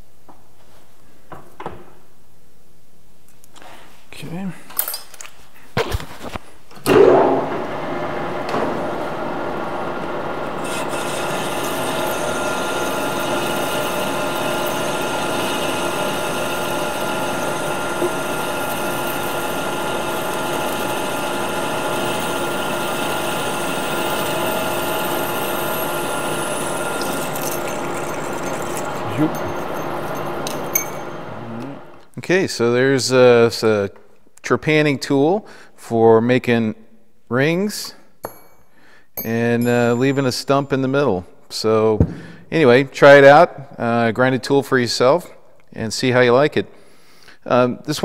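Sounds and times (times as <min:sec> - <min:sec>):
metal lathe running: 0:07.4 - 0:31.9
cutting tool hissing on metal: 0:10.6 - 0:29.6.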